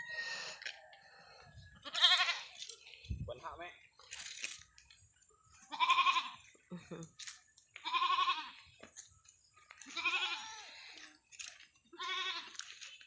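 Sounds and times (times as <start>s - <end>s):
goat bleating: 1.8s - 2.6s, 5.7s - 6.5s, 7.8s - 8.7s, 9.8s - 10.8s, 11.8s - 13.0s.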